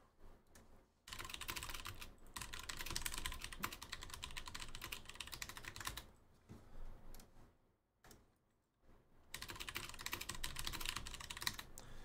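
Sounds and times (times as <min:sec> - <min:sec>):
fast typing on keyboard: 0:01.1 - 0:06.1, 0:09.3 - 0:11.7.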